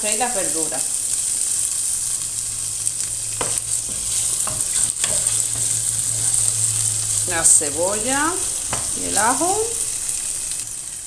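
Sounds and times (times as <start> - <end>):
onion sizzling in hot oil: 0.0 - 11.0
utensil clicking against pan: 3.4 - 5.9.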